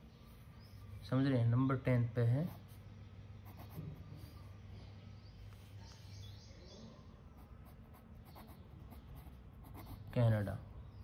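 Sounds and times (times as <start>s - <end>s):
pen scratching on paper: 2.4s - 4.4s, 7.3s - 10.3s.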